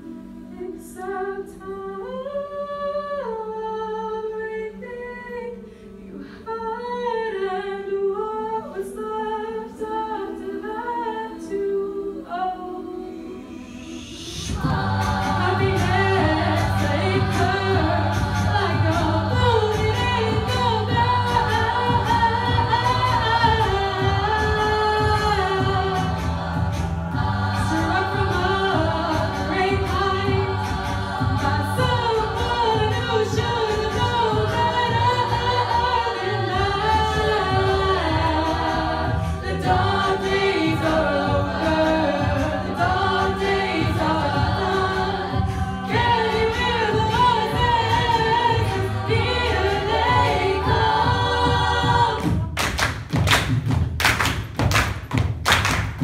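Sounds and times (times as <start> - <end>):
choir backing harmonies: 0.0 - 56.0
female lead singing: 0.5 - 52.8
vocal bass line: 14.4 - 52.6
rhythmic hand claps and thumps: 23.5 - 35.5, 47.0 - 56.0.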